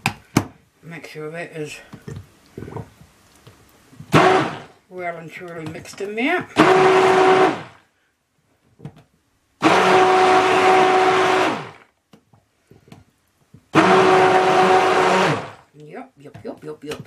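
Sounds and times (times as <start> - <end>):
stick blender motor humming: 4.1 - 4.7, 6.6 - 7.8, 9.6 - 11.8, 13.8 - 15.6.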